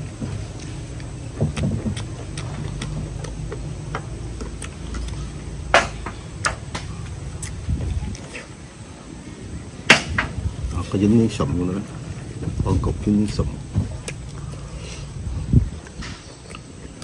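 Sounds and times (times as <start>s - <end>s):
close chewing with mouth smacks: 0.3s - 5.5s, 6.8s - 8.6s, 13.8s - 17.0s.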